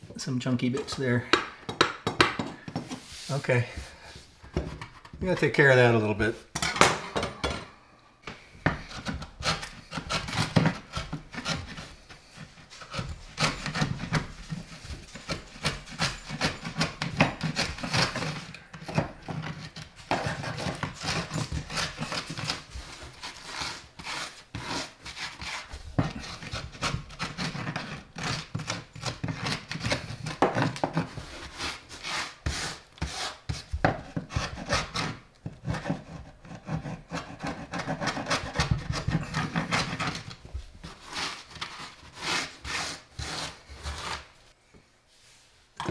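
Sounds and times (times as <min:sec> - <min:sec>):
chisel scraping particleboard: 0:08.7 - 0:44.3.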